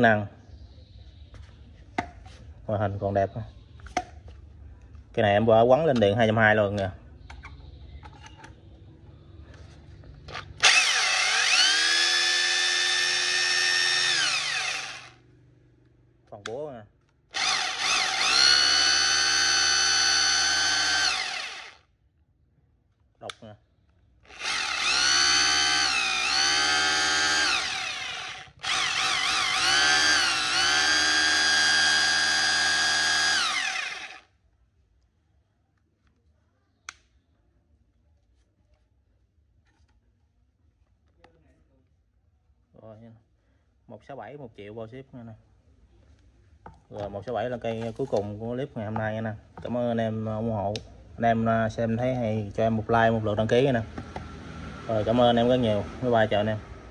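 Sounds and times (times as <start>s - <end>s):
rotary hammer motor whining: 10.6s - 15.2s, 17.3s - 21.8s, 24.3s - 34.3s.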